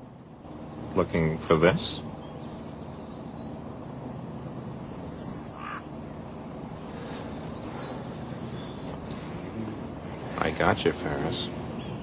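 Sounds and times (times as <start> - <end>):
low background noise: 0.0 - 12.0
bird chirps: 1.8 - 3.6, 4.4 - 9.6.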